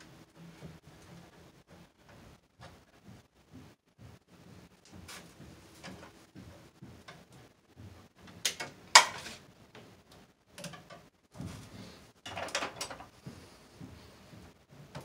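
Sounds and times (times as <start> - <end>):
clicks and knocks of tools: 8.3 - 9.4, 10.1 - 11.1, 12.2 - 13.1.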